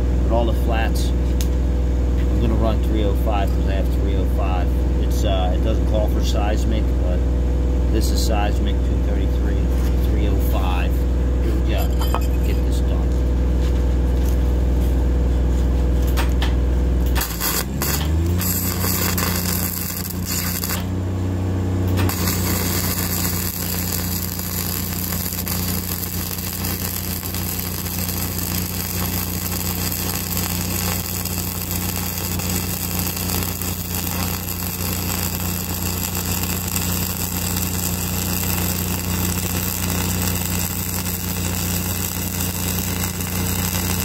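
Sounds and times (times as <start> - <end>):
engine running: 0.0 - 44.0
arc welding crackling: 17.0 - 21.1, 21.8 - 44.0.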